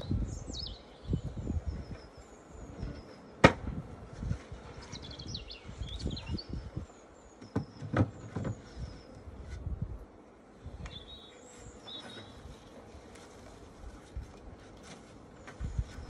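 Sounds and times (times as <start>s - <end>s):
wooden hive parts knocking: 7.4s - 8.6s.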